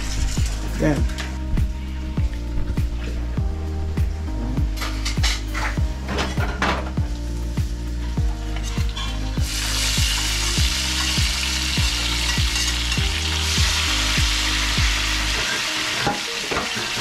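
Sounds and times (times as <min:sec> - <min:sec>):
food sizzling in hot oil: 0:00.0 - 0:01.1, 0:06.8 - 0:17.0
music with deep bass beat: 0:00.0 - 0:15.4.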